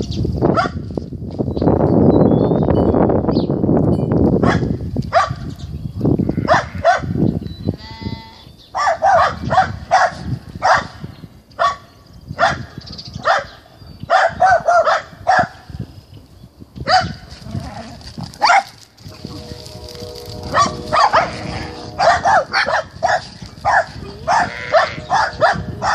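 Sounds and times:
farm animals calling: 6.2 - 7.0, 7.6 - 8.6, 18.4 - 25.9
buzzy pulsing animal call: 19.1 - 23.4, 24.0 - 25.8.

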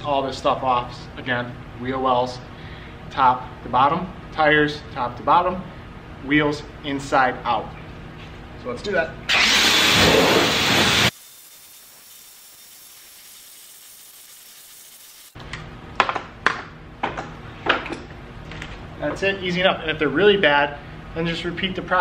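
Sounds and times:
hose spray hissing: 9.3 - 15.4.

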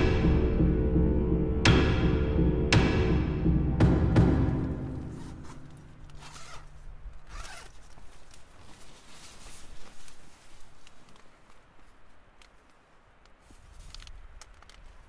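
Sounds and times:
loud music hit: 0.0 - 5.7
tent zipper pulled open: 5.2 - 10.3.

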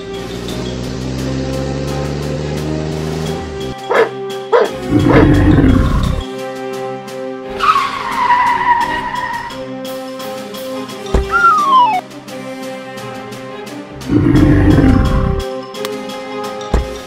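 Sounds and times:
background music: 0.0 - 17.0
dog barking: 3.9 - 4.8
descending whistle-like tone: 11.3 - 12.0.

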